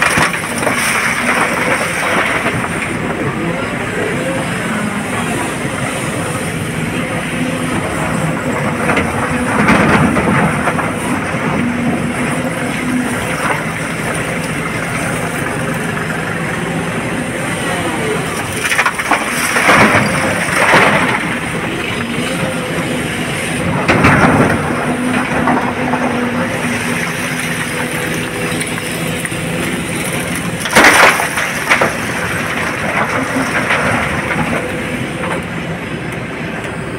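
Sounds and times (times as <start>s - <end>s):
rock crunching and rattling: 0.0s - 3.1s, 18.3s - 22.5s, 23.7s - 34.8s
excavator engine and hydraulic whine: 0.0s - 36.9s.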